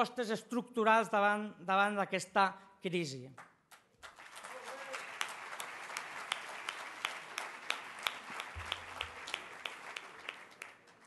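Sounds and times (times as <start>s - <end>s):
sharp individual claps: 3.4s - 11.0s
audience applauding: 3.7s - 11.0s.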